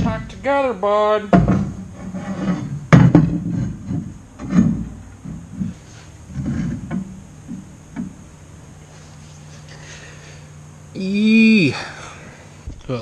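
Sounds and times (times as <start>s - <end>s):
steel tubing scraping: 0.0s - 8.2s.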